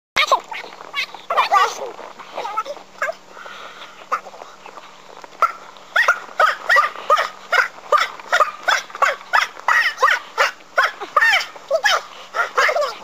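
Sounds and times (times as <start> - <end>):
dog barking: 5.4 - 13.0.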